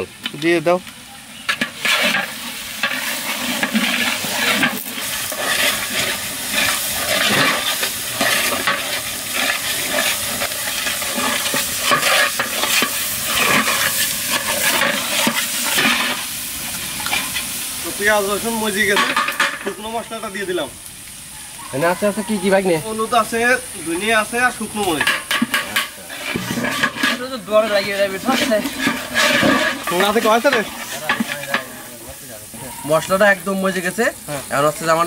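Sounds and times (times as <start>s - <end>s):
paste sizzling in oil: 0.0s - 35.0s
metal spatula scraping pot: 1.4s - 16.2s, 25.0s - 31.9s.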